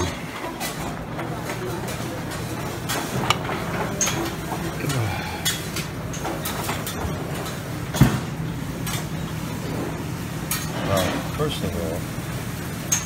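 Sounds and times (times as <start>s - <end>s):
room noise: 0.0s - 13.0s
dishes clinking: 2.8s - 7.6s.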